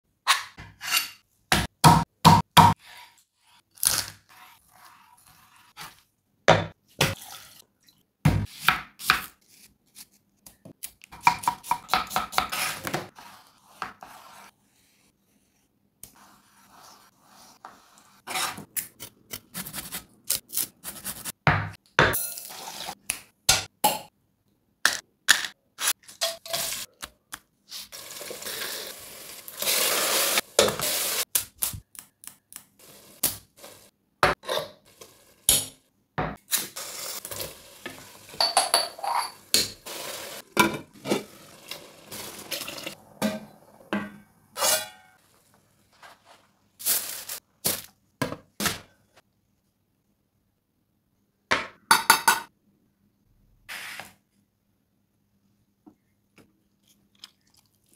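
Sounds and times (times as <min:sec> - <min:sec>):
food frying: 0:27.9 - 0:31.3, 0:36.5 - 0:43.0.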